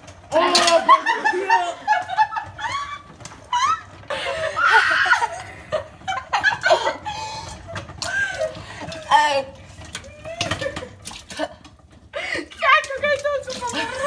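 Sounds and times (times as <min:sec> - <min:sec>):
girls laughing and squealing: 0:00.3 - 0:08.7.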